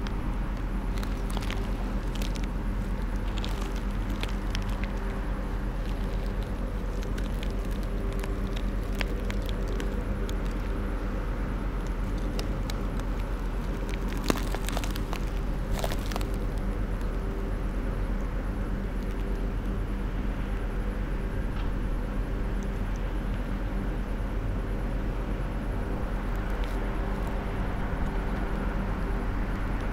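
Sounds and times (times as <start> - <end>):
small clicks and crackles: 0.0 - 17.6, 18.2 - 19.8, 26.0 - 28.7
low machine hum: 0.0 - 29.9.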